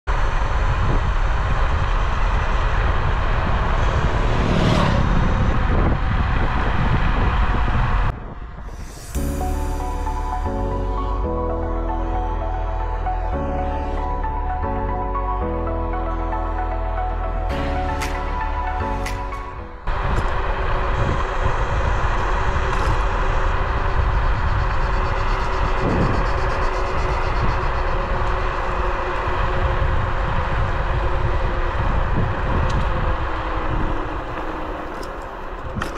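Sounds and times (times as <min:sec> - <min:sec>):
tyre and road rumble: 0:00.1 - 0:11.1, 0:17.5 - 0:35.9
wind buffeting microphone: 0:00.1 - 0:11.2, 0:18.9 - 0:35.9.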